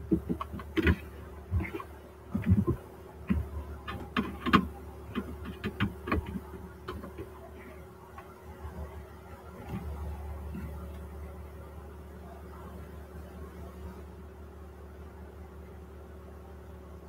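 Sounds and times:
light clicks and knocks: 0.0s - 8.4s
steady low hum: 0.0s - 17.0s.

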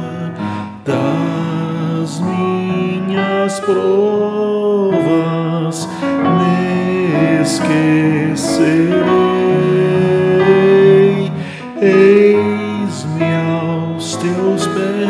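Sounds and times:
hymn sung with instruments: 0.0s - 15.0s.

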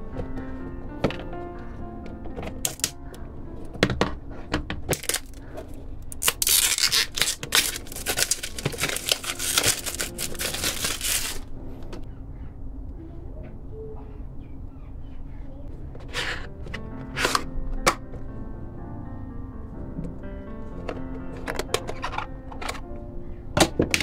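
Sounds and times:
packaging clicks and taps: 2.1s - 5.5s, 6.2s - 12.1s, 20.8s - 22.8s
packaging rustling: 2.5s - 3.0s, 4.9s - 11.5s.

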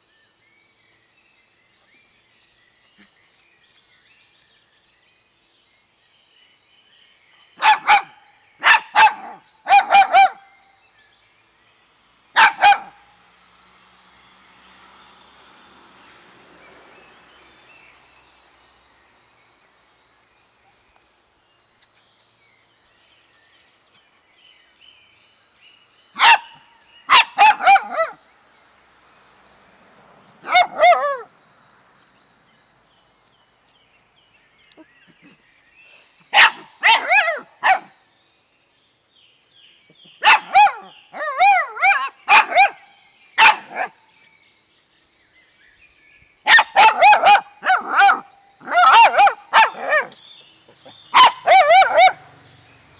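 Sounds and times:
dog barking: 7.6s - 10.5s, 12.4s - 13.0s, 26.2s - 28.2s, 30.5s - 31.3s, 36.4s - 37.9s, 40.2s - 42.8s, 43.4s - 43.9s, 46.5s - 50.2s, 50.8s - 52.3s
faint bird chirps: 32.0s - 52.9s.

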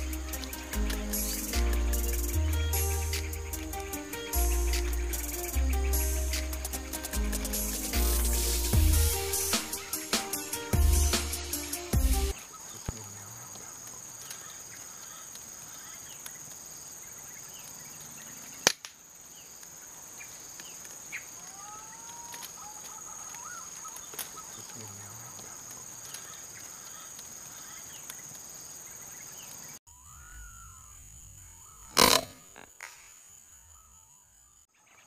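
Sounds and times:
high-pitched insect drone: 0.0s - 11.0s
sharp crack: 18.6s - 19.0s, 31.8s - 33.3s
faint whistled bird calls: 20.2s - 28.2s, 29.0s - 35.0s.

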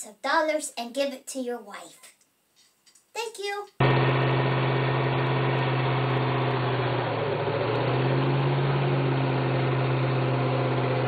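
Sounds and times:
car engine revving high: 3.8s - 11.0s
tyres spinning in a burnout: 3.8s - 11.0s.

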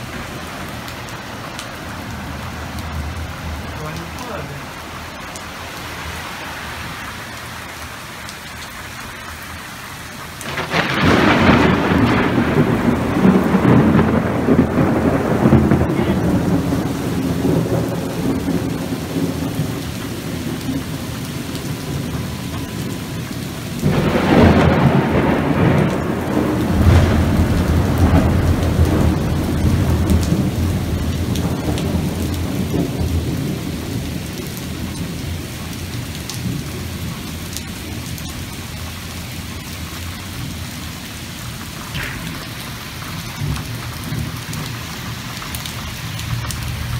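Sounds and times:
heavy rain pouring: 0.0s - 46.9s
thunderclaps rolling: 10.4s - 38.5s, 41.6s - 46.9s.

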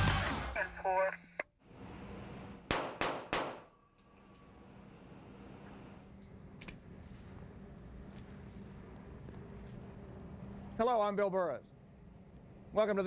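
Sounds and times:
sharp ringing bangs: 2.7s - 3.9s.

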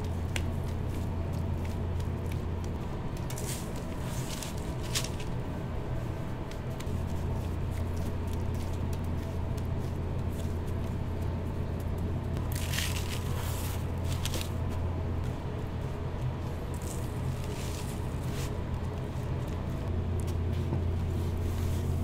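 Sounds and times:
crumbly rustle and squish: 0.0s - 22.0s
steady low hum: 0.0s - 22.0s
crunchy scrunch: 12.4s - 14.6s.

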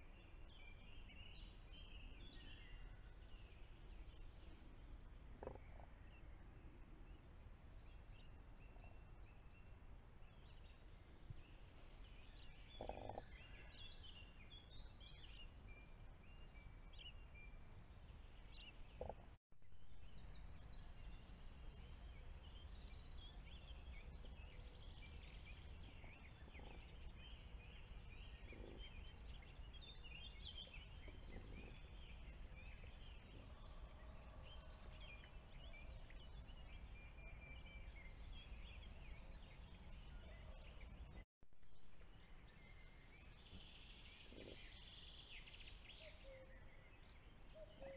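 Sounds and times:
songbirds chirping: 0.0s - 47.9s
low bird calls: 12.2s - 15.4s, 18.9s - 19.4s, 23.2s - 35.4s.

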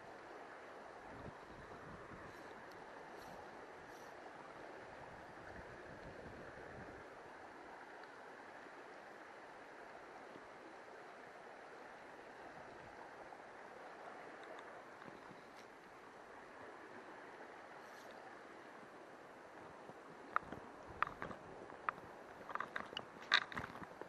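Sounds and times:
river running over rocks: 6.5s - 24.0s.

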